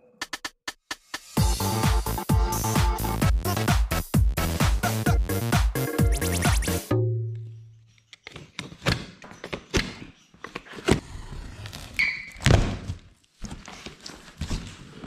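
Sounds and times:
electronic music: 1.2 - 7.8.

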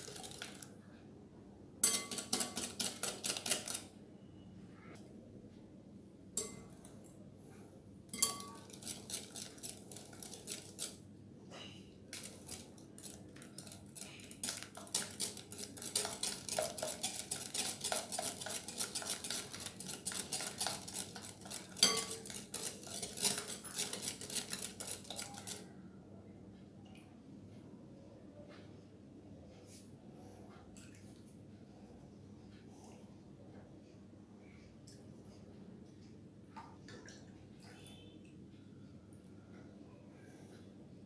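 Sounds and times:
whisk clicking against glass bowl: 1.8 - 3.8, 8.1 - 11.0, 12.1 - 25.6.

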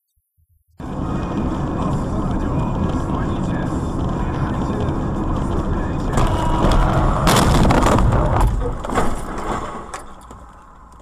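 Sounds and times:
road noise inside car: 0.8 - 11.0
knocks and rattles: 1.2 - 11.0
car crash impact: 6.1 - 10.4.

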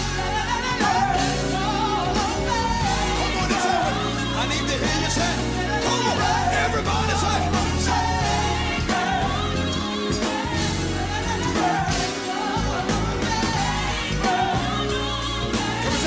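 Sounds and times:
gospel singing over a band: 0.0 - 16.0.

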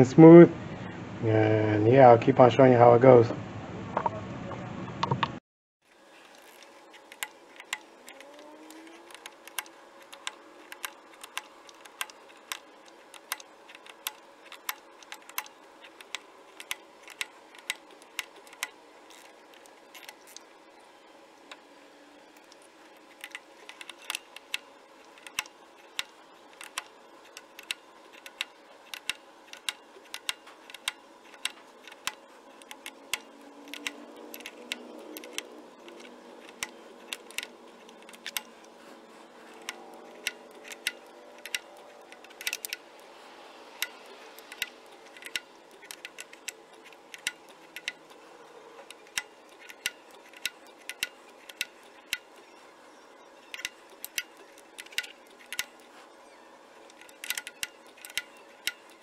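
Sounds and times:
sharp metallic wrench clicks: 23.2 - 38.5, 39.4 - 42.8, 43.8 - 48.2, 48.8 - 52.5, 53.4 - 55.8, 56.9 - 59.0.

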